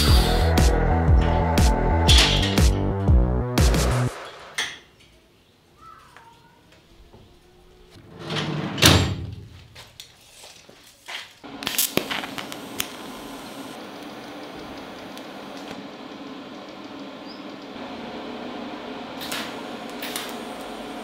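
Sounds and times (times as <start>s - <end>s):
welding hiss with low hum: 11.4s - 21.0s.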